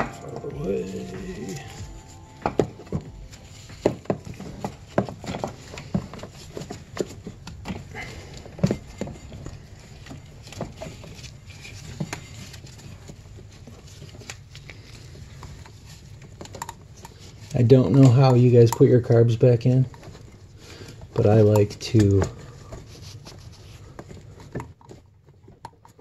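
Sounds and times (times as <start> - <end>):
low steady hum: 0.0 - 18.2.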